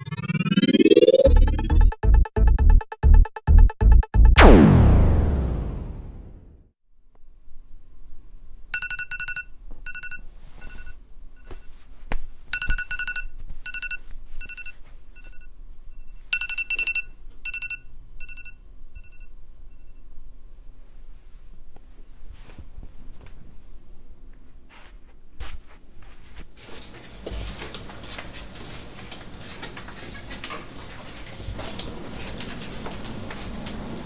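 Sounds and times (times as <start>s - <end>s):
electronic ringtone beeps: 0.0s - 4.3s.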